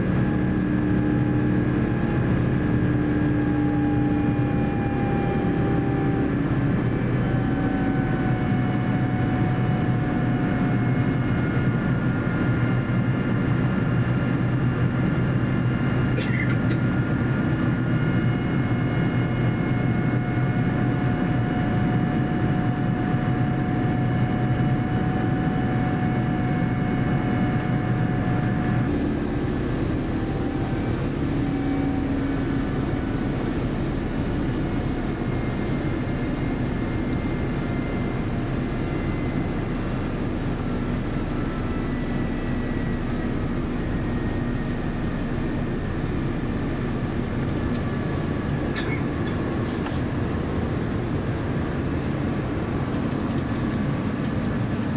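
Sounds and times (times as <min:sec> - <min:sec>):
jet engine drone and airflow: 0:00.0 - 0:54.9
whining tones: 0:00.2 - 0:12.7.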